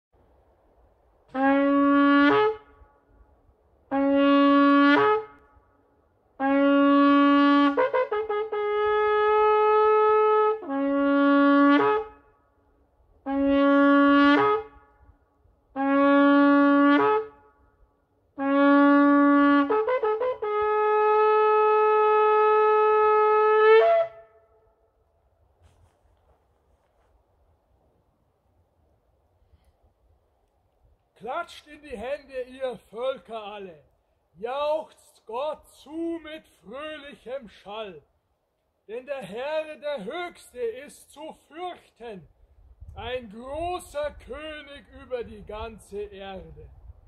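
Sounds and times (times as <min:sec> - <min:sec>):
shofar blasts: 0:01.3 - 0:03.1, 0:03.9 - 0:05.8, 0:06.4 - 0:12.5, 0:13.2 - 0:17.8, 0:18.4 - 0:24.9.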